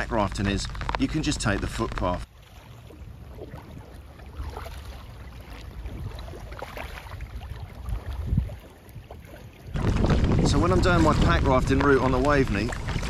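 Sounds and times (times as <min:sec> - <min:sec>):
steady low rumble: 0:00.0 - 0:02.3, 0:09.8 - 0:13.0
paddle strokes splashing: 0:00.0 - 0:13.0.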